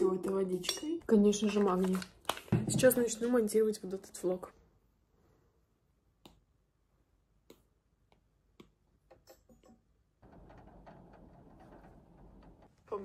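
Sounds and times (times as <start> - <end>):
stylus tapping touchscreen: 7.4 - 9.4.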